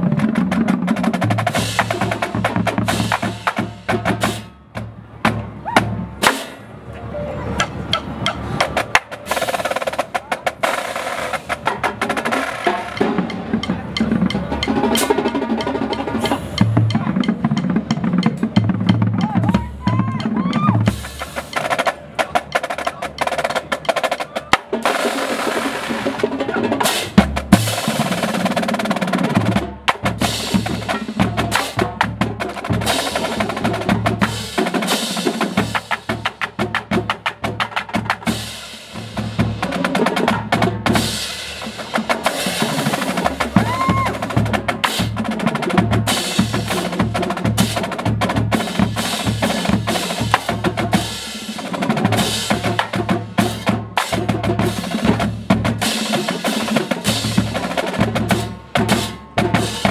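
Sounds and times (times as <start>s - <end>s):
snare drum strokes: 5.3s - 6.7s
bass drums: 11.5s - 24.3s, 35.3s - 51.2s.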